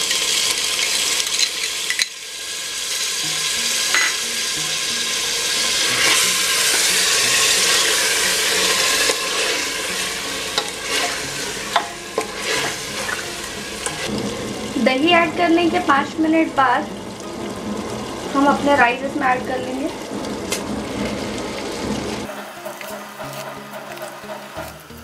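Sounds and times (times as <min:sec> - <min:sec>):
chicken sizzling in a pot: 0:00.0 - 0:25.0
spoon stirring: 0:06.0 - 0:14.1.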